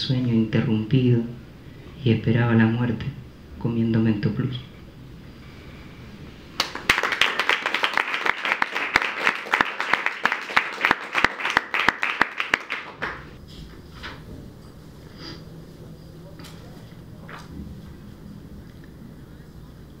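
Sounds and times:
audience applauding: 6.6 - 13.4.

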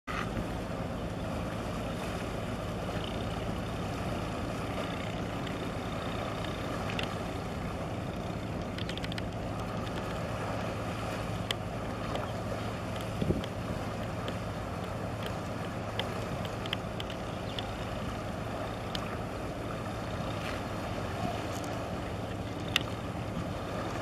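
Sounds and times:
wind and water noise: 0.0 - 24.0
ship engines humming: 0.1 - 24.0
faint clicks: 2.9 - 3.5, 4.7 - 7.4, 8.0 - 10.8, 11.4 - 18.0, 18.7 - 19.2, 21.5 - 23.0.

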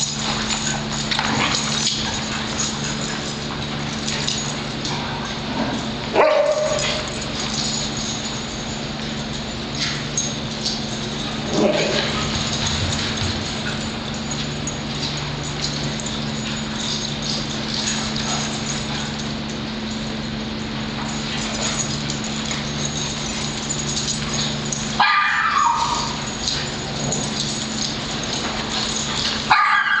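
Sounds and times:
dogs yipping and barking: 0.0 - 30.0
steady low hum: 0.0 - 30.0
loud high-pitched dog bark: 6.2 - 6.8, 25.0 - 26.1, 29.5 - 30.0.

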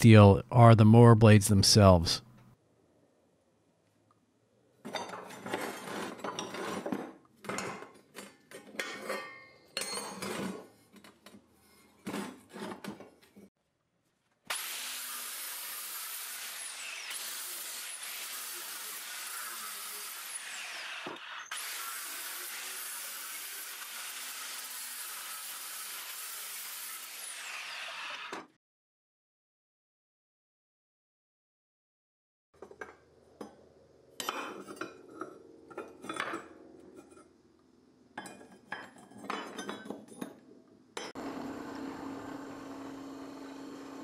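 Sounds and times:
metal parts scraping and clattering: 4.9 - 13.5
angle grinder cutting steel: 14.5 - 28.4.

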